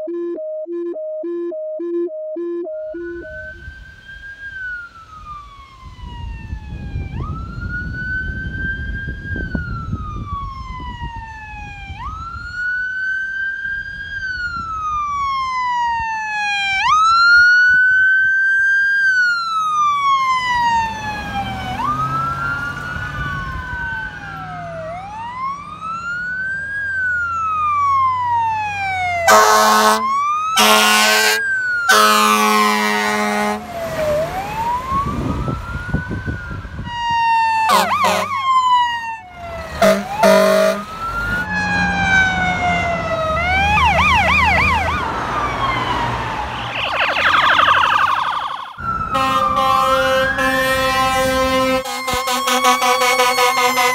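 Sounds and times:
electronic sirens wailing: 0.0 - 53.9
siren yelp: 0.0 - 53.9
diesel engine rumble: 20.0 - 30.4, 31.6 - 53.9
air horn blasts: 29.2 - 33.7, 37.7 - 38.4, 39.7 - 41.0, 49.1 - 53.9.

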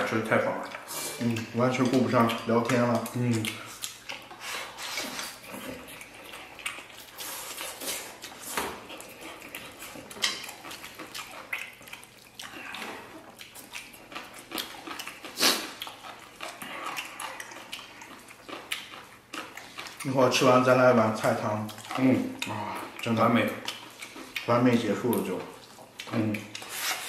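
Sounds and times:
food chewed: 0.0 - 27.0
noodles slurped: 10.6 - 20.6.

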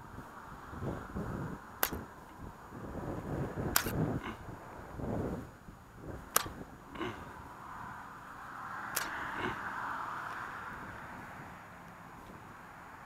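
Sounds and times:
fishing reel clicks: 3.8 - 4.0, 8.9 - 9.2.

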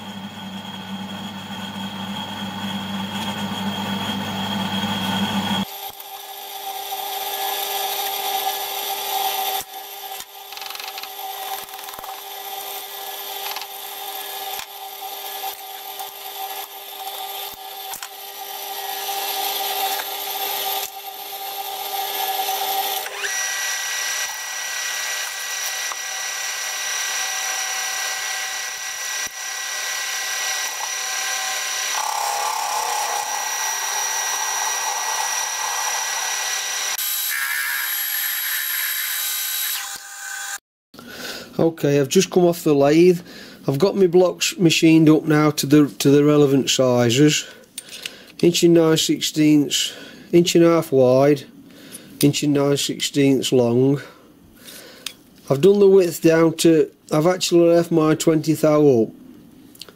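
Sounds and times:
lathe running: 0.1 - 40.6.

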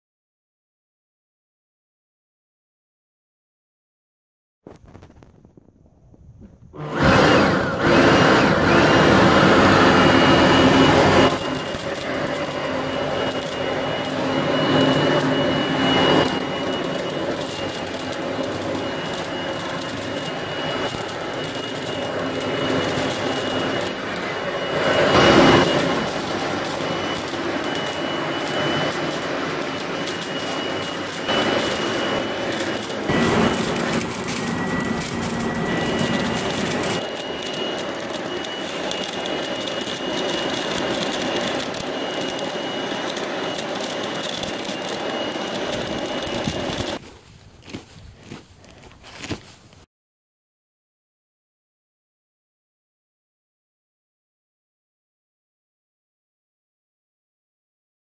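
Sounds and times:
leaf vacuum shredder whining: 6.5 - 49.6.

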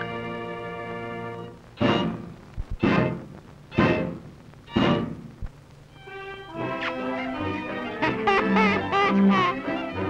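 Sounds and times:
small band with brass playing jazz: 0.1 - 5.3, 6.1 - 10.0.

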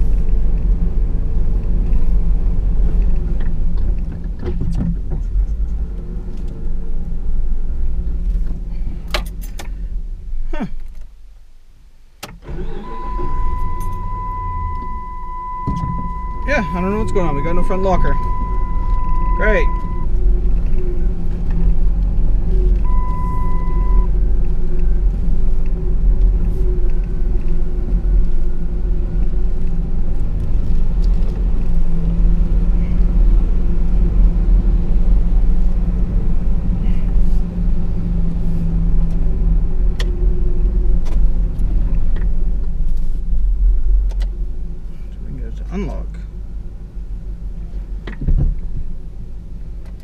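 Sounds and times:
engine and drivetrain rumble: 0.0 - 50.0
beep: 12.8 - 20.1, 22.8 - 24.1.

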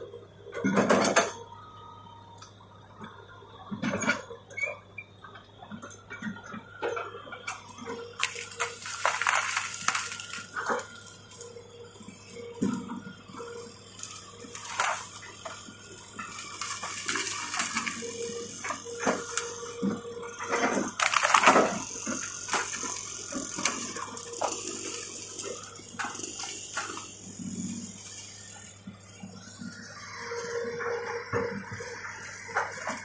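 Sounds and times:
excavator hum: 0.0 - 33.0
branches snapping and crunching: 8.1 - 11.0, 14.0 - 19.5, 20.5 - 25.4.

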